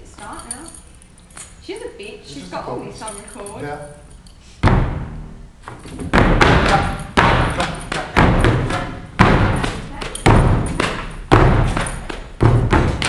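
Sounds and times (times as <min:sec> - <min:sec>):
heavy thuds ringing in hall: 0:04.6 - 0:13.0.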